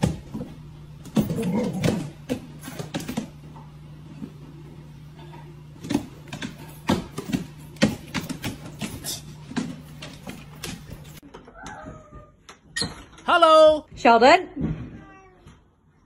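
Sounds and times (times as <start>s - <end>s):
steady low hum: 0.0s - 11.2s.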